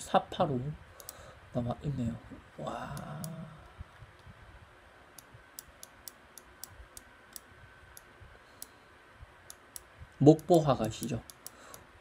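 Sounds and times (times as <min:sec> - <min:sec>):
computer mouse clicks: 0:01.0 - 0:01.2, 0:05.2 - 0:08.8, 0:09.5 - 0:11.8.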